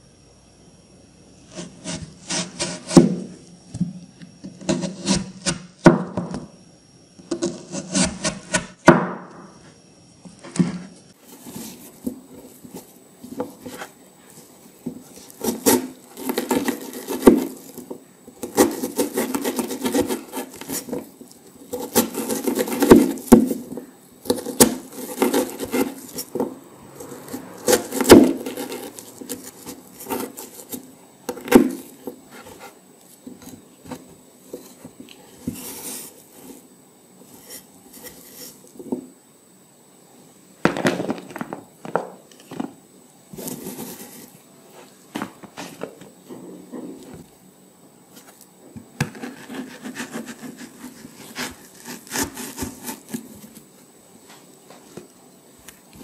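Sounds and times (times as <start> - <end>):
knife chopping on cutting board: 14.8 - 21.0, 21.7 - 26.5, 27.3 - 32.6, 49.0 - 53.2.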